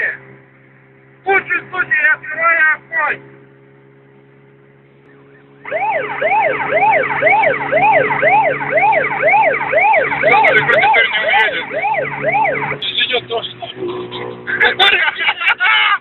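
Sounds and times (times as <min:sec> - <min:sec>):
low steady hum: 0:00.0 - 0:16.0
police siren wailing: 0:05.0 - 0:14.8.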